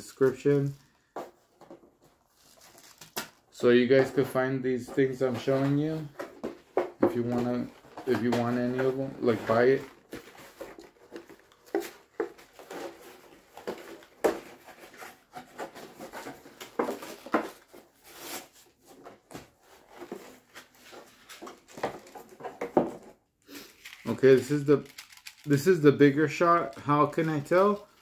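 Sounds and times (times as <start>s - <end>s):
plastic packaging crinkling: 2.3s - 3.4s, 23.5s - 28.0s.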